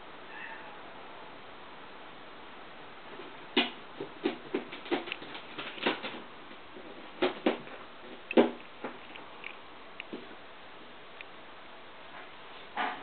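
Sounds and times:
kittens play-fighting with soft thumps: 3.1s - 9.2s.

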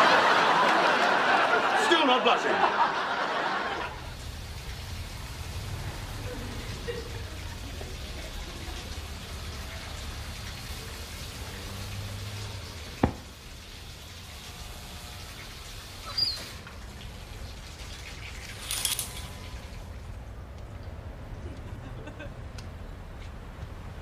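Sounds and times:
short squeak: 16.0s - 16.6s
rattling scrape: 18.5s - 19.4s.

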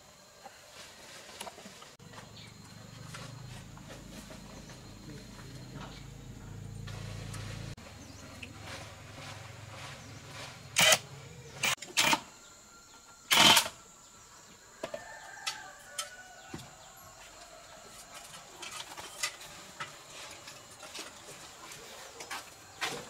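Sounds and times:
low hum: 2.0s - 11.7s.

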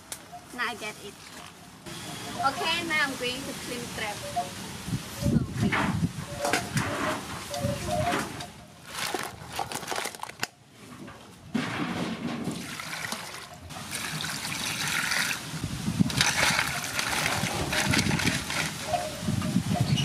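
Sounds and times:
water splashing in metal basin: 12.5s - 18.8s.

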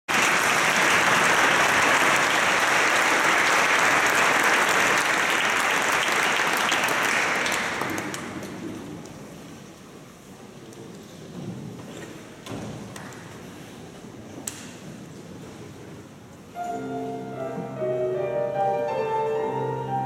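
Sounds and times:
audience applauding: 0.1s - 8.8s.

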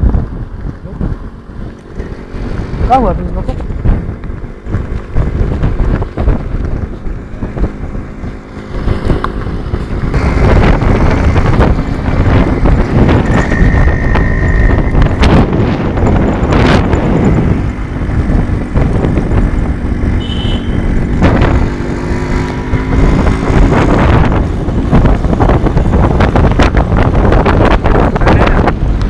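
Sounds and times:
motorcycle engine running: 0.0s - 29.0s
wind buffeting microphone: 0.0s - 29.0s.

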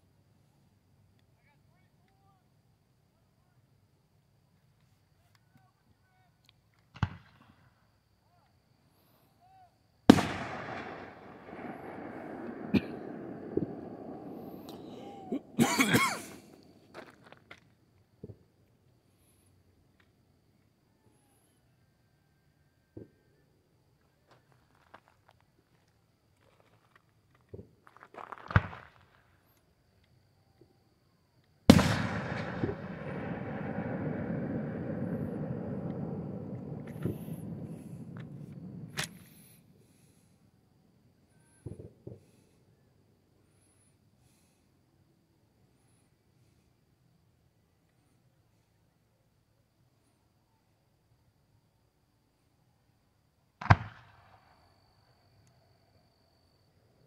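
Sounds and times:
firework bang: 10.1s - 16.6s, 31.7s - 40.1s, 53.6s - 54.3s
rumbling echo: 31.7s - 39.0s
firework whoosh and thump: 32.4s - 39.4s.

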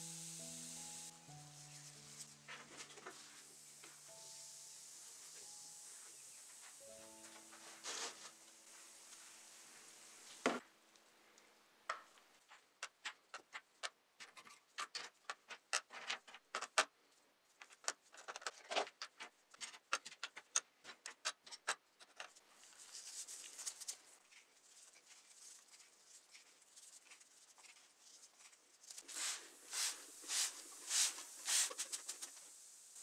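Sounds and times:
soft hiss: 0.0s - 12.5s, 22.5s - 33.0s.

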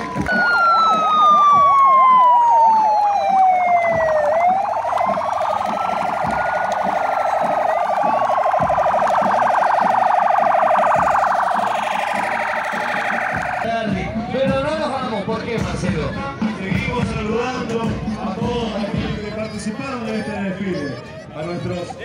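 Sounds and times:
police siren wailing: 0.0s - 13.7s
police siren warbling: 0.0s - 13.7s.

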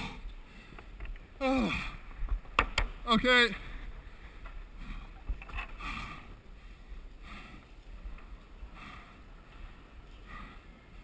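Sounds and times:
person breathing softly: 0.0s - 1.0s, 3.6s - 11.0s.

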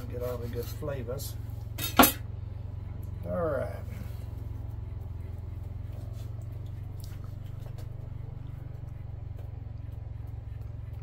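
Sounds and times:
low hum: 0.0s - 11.0s
person chewing food: 5.7s - 11.0s.

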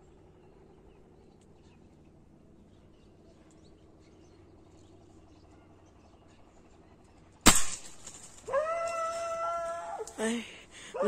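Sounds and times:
air rifle firing: 7.4s - 8.4s.

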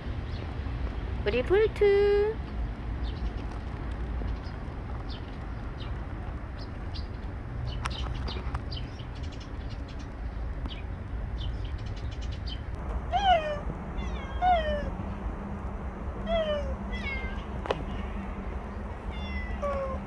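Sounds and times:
cat meowing: 13.1s - 14.9s, 16.3s - 18.1s, 19.1s - 20.0s.

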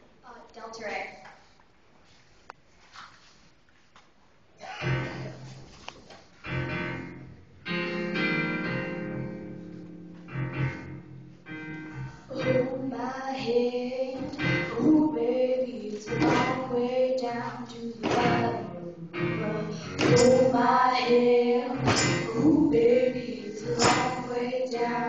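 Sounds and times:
young female voices singing: 12.3s - 25.0s.

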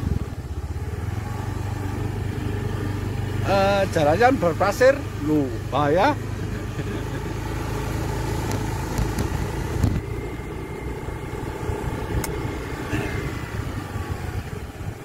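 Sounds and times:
scooter engine and road rumble: 0.0s - 15.0s
sharp clicks: 12.2s - 12.4s.

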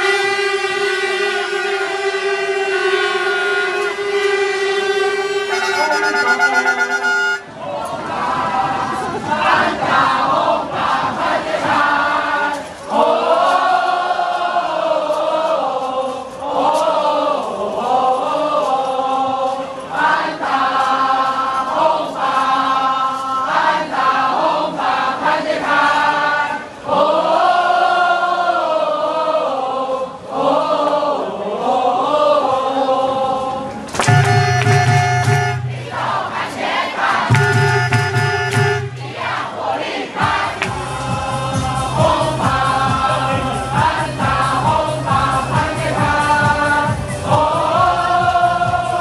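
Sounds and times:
crowd chanting and singing: 0.0s - 49.0s
air horns blaring: 3.2s - 7.6s, 34.0s - 36.2s, 37.3s - 39.4s.

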